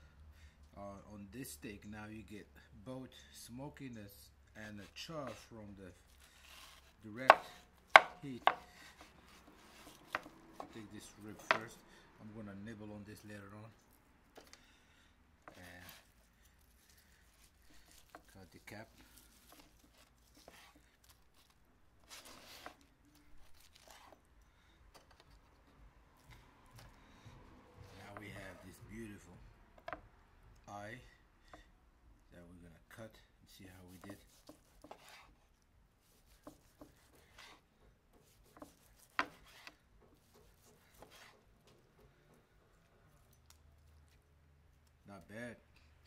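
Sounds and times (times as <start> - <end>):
knife slicing steak on cutting board: 6.4 - 11.7, 19.3 - 21.0, 22.1 - 22.8, 34.0 - 35.3, 36.1 - 41.4
blade tapping wooden board: 7.2 - 8.7.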